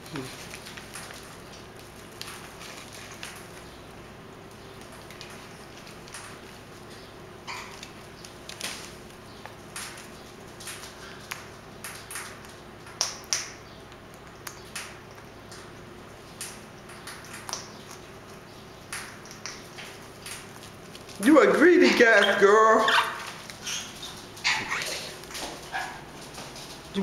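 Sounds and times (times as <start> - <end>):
beaks cracking seeds: 4.5 - 22.5.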